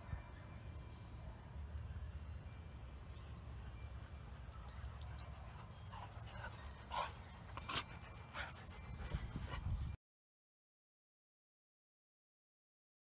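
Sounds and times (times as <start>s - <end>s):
dog panting: 5.5s - 9.9s.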